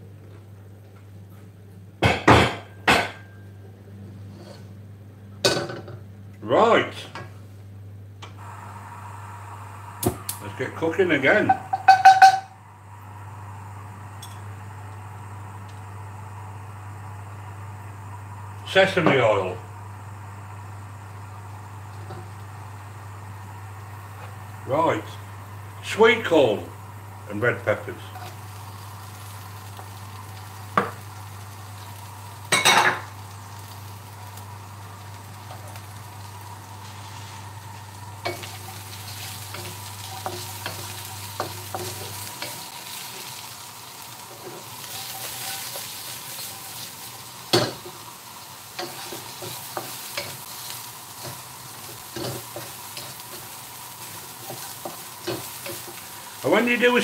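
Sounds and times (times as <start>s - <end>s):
spatula scraping a wok: 4.3s - 4.7s, 38.2s - 43.4s, 44.3s - 46.9s, 48.8s - 56.0s
vegetables sizzling in hot oil: 8.4s - 57.0s.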